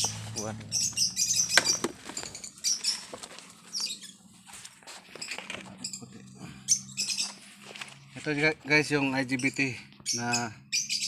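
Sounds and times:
birds chirping: 0.0 - 11.0
paper rustling: 1.8 - 3.8, 7.2 - 8.6.

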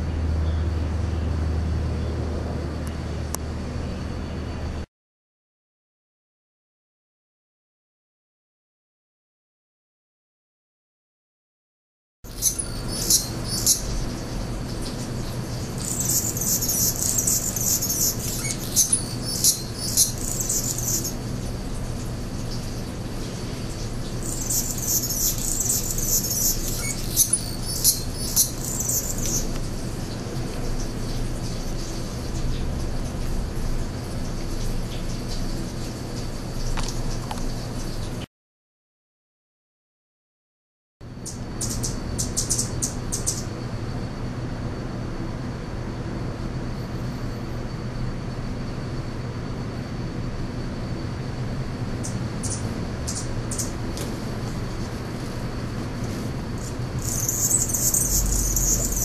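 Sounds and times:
low traffic-like rumble: 0.0 - 4.9, 12.3 - 38.2, 41.1 - 59.0
sharp bird chips: 12.3 - 21.2, 23.6 - 29.6, 56.6 - 59.0
hummingbirds chattering squeaks: 12.3 - 31.9, 41.2 - 43.5, 52.0 - 53.8, 56.6 - 59.0.

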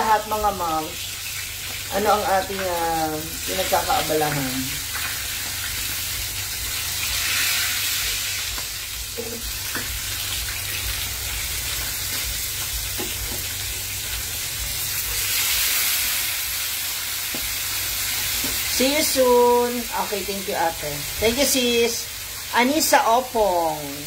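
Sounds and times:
fish sizzling in hot oil: 0.0 - 24.0.

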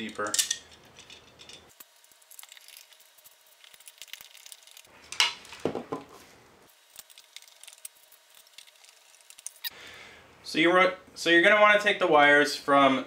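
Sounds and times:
metal screws clinking: 0.1 - 1.8.

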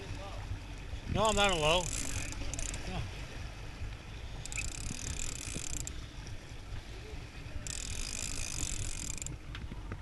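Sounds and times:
fishing reel gears whirring: 1.2 - 3.0, 4.1 - 6.2, 7.6 - 9.5.

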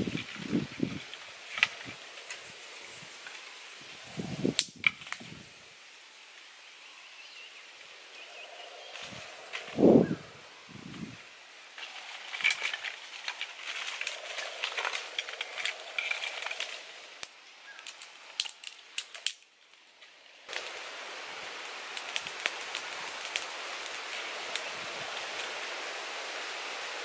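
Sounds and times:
steady fire hiss: 0.0 - 27.0
twig fire crackling: 0.0 - 27.0
dry sticks snapping: 1.0 - 2.4, 4.5 - 5.3, 11.8 - 20.8, 21.5 - 25.6.

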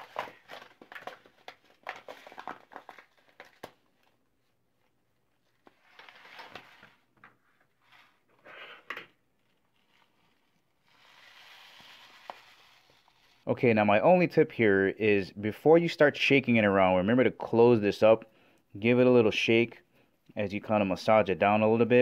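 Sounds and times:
plastic pellets pattering: 0.0 - 4.0
plastic pouch crinkling: 0.0 - 4.2.

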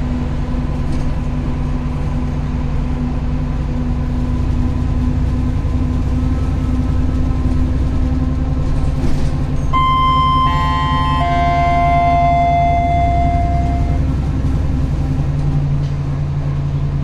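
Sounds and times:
bus engine droning: 0.0 - 17.0
electronic tones: 9.8 - 14.1.

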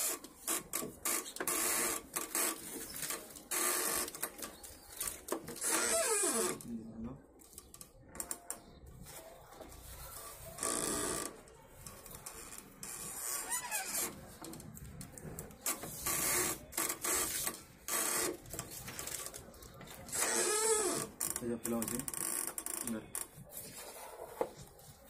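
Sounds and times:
paper sheets handled: 18.4 - 20.1.

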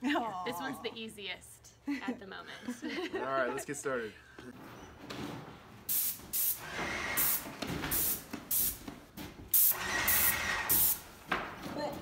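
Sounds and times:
paint sprayer hissing bursts: 5.9 - 8.8, 9.5 - 11.1.

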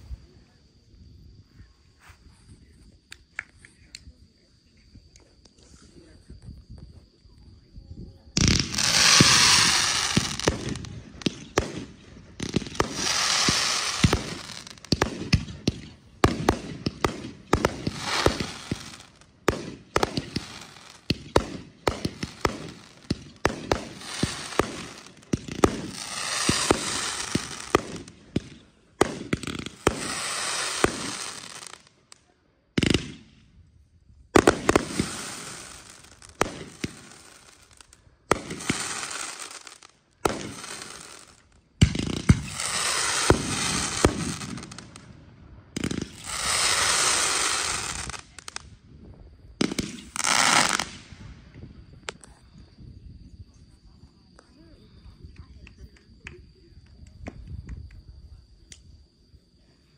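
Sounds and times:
fireworks crackling and hiss: 0.0 - 59.9
fireworks bangs: 8.3 - 32.0, 32.8 - 33.4, 34.3 - 48.8, 49.6 - 51.3.

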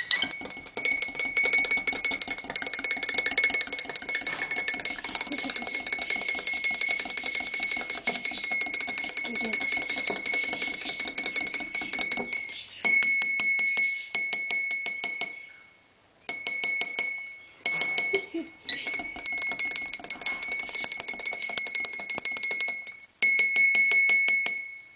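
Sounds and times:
coffee cup clinking: 0.0 - 15.4, 16.3 - 24.7.

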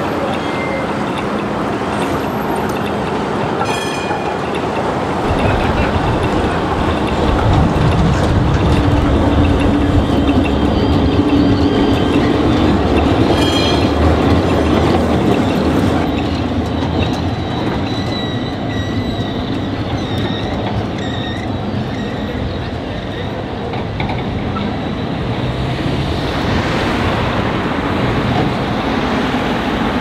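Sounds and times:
high wheel squeals: 0.0 - 4.8, 8.6 - 25.7
tram motor hum: 0.0 - 30.0
tram wheels rumbling on rails: 0.0 - 30.0.

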